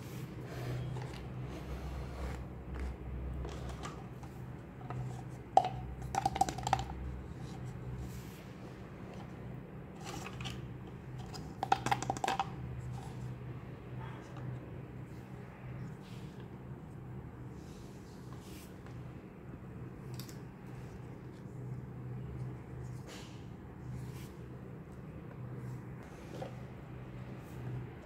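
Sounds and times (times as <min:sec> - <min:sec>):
plastic spoons tapping plastic pots: 0:03.5 - 0:07.6, 0:11.2 - 0:12.6
steady low hum: 0:12.4 - 0:28.0.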